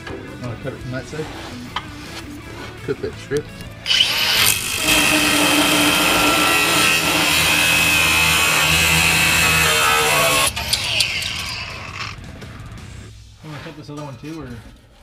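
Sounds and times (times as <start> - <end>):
cut-off wheel grinding steel: 3.8 - 12.2.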